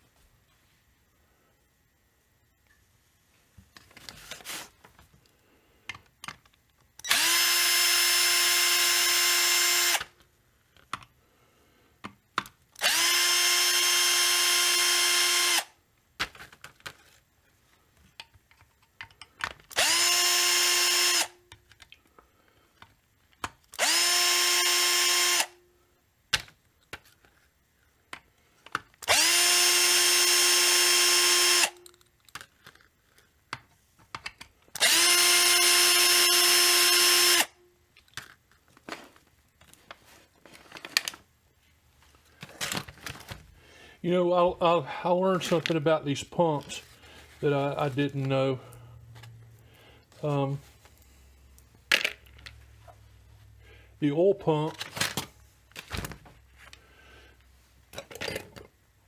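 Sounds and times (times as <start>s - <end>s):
cordless drill running: 7.0s - 10.1s, 12.8s - 15.8s, 19.7s - 21.4s, 23.7s - 25.6s, 29.0s - 31.8s, 34.8s - 37.6s.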